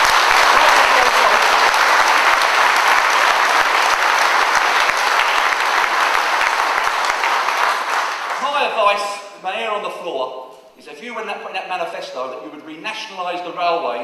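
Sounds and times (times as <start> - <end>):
audience applauding: 0.0 - 9.0.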